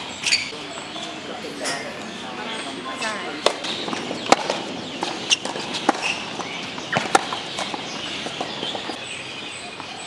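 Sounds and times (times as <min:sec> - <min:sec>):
tennis ball struck and bouncing: 0:03.4 - 0:08.9.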